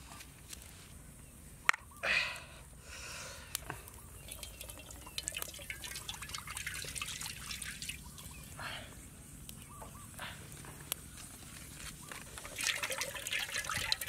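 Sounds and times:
milk pouring into metal wok: 4.2s - 8.2s, 12.4s - 14.0s.

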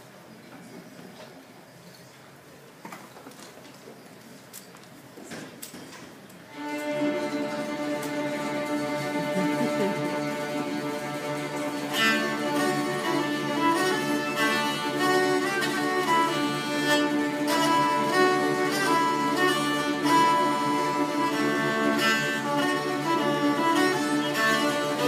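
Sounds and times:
dulcimers and strings playing a tune: 6.5s - 25.0s.

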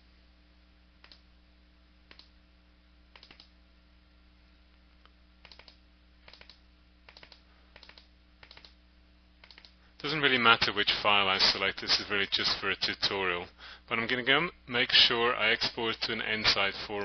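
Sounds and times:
low steady hum: 0.0s - 17.0s
computer mouse clicks: 1.0s - 1.2s, 2.1s - 2.3s, 3.1s - 3.5s, 5.4s - 8.8s, 9.4s - 9.8s.

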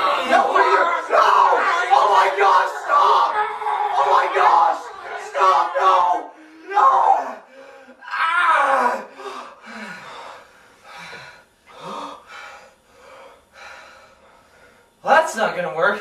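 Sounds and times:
man crying out: 0.0s - 9.2s
man gasping and breathing hard: 9.0s - 14.7s.

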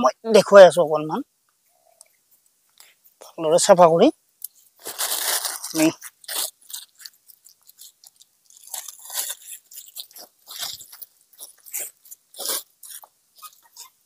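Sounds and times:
manure crunching and rustling: 4.7s - 13.9s.

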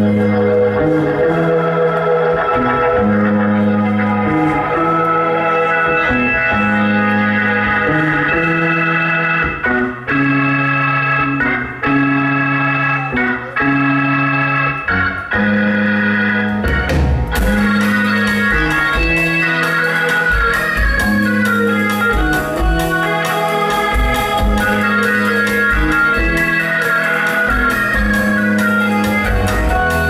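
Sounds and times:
bass guitar: 0.0s - 30.0s
electric organ chords: 0.0s - 30.0s
drums: 14.8s - 30.0s.

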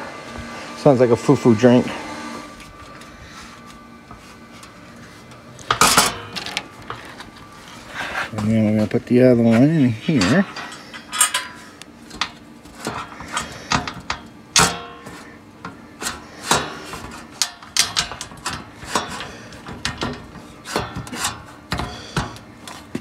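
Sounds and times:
metal panels knocking and scraping: 4.1s - 8.9s, 9.5s - 23.0s.

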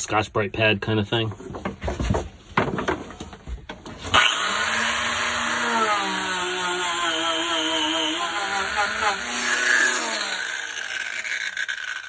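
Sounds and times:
rotary tool scrubbing paint: 4.2s - 12.0s.

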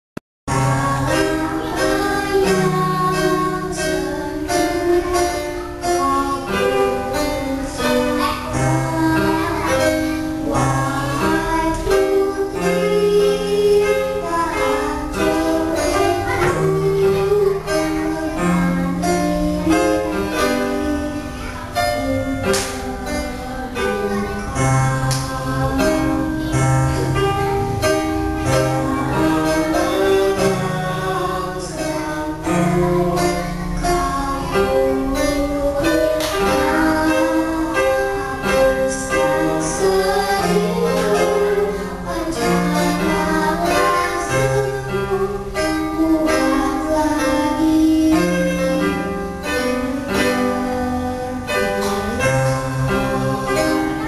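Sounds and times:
electronic keyboard accompaniment: 0.5s - 54.0s
girl singing into a microphone: 0.5s - 54.0s.

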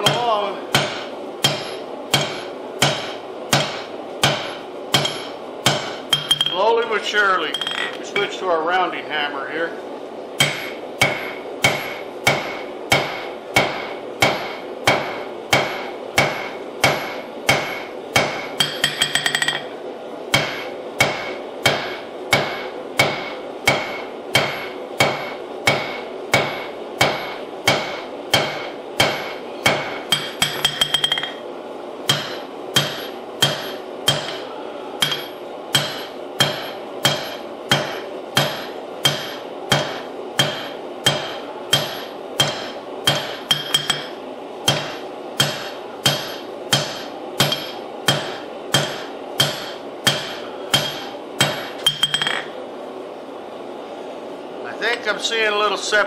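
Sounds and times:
hammer striking metal on anvil: 0.0s - 6.7s, 7.5s - 8.3s, 10.4s - 19.7s, 20.3s - 31.4s, 32.1s - 52.5s
anvil ringing: 5.0s - 6.7s, 7.4s - 8.0s, 18.6s - 19.7s, 27.1s - 31.4s, 35.0s - 44.1s, 44.7s - 52.5s.

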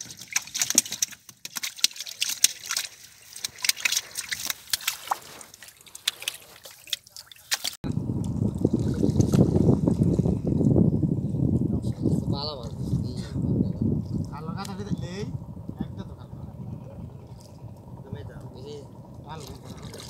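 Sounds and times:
water dripping off net: 0.0s - 7.8s
low steady rumble: 7.8s - 20.0s.

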